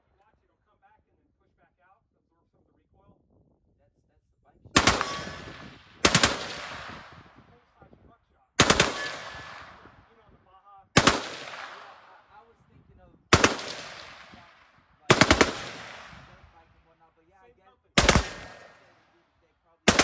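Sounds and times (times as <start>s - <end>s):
machine gun bursts with echo: 4.8s - 7.2s, 8.6s - 9.8s, 11.0s - 12.2s, 13.3s - 16.6s, 18.0s - 19.0s.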